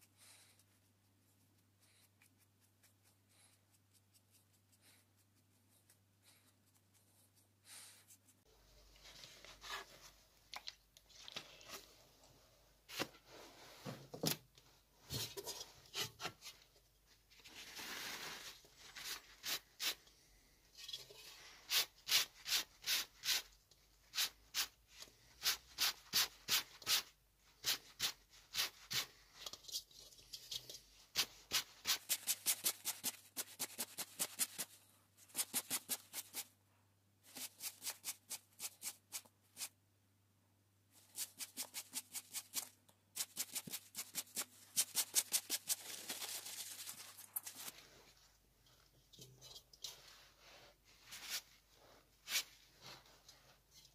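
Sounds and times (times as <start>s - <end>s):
paper rustle: 44.4s - 47.9s.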